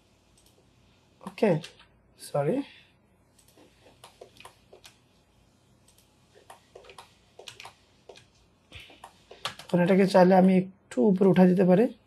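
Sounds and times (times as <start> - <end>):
computer mouse clicks: 0.3 - 0.6, 3.3 - 5.0, 5.8 - 10.0
mouse scroll-wheel turns: 3.3 - 5.0, 5.8 - 10.0
keyboard key presses: 6.4 - 10.0.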